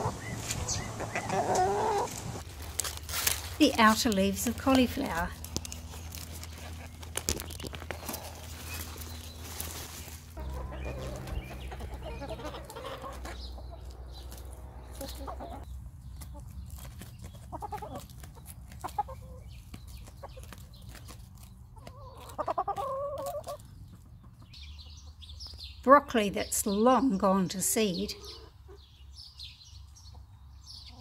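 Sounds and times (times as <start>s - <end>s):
hens clucking: 0.0s - 2.4s, 10.3s - 24.6s.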